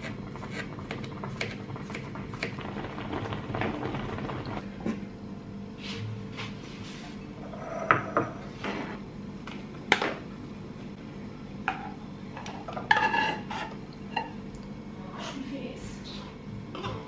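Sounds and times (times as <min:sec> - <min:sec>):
spoon scraping saucepan: 0:12.8 - 0:13.8.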